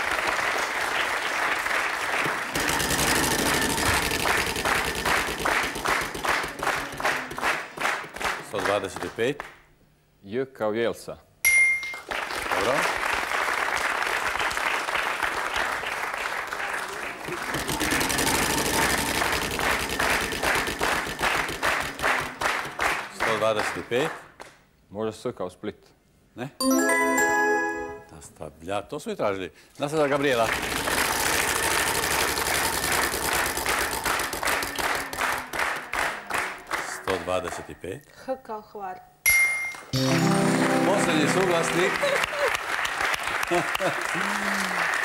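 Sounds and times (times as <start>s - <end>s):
audience applauding: 0.0s - 9.3s, 12.0s - 24.2s, 29.9s - 37.7s, 39.9s - 45.0s.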